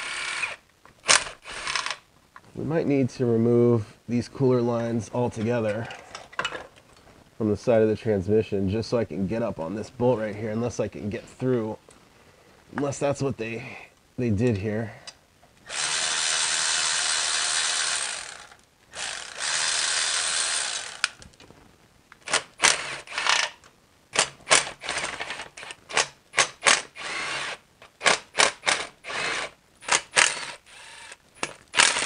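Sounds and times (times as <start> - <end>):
electric ratchet spinning bolts: 0.0 - 2.0, 15.7 - 21.2, 22.2 - 23.6, 24.2 - 32.0.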